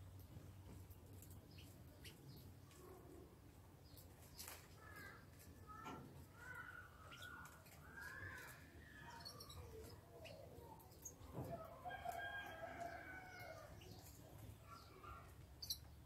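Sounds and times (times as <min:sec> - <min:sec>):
finches chirping: 0:15.1 - 0:15.9.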